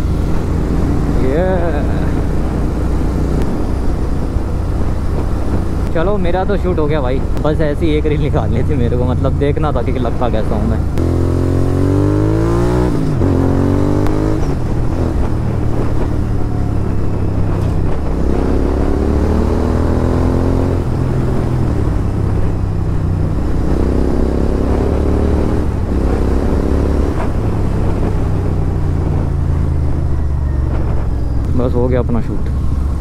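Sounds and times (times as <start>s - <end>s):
motorcycle engine shifting gears: 8.8s - 33.0s.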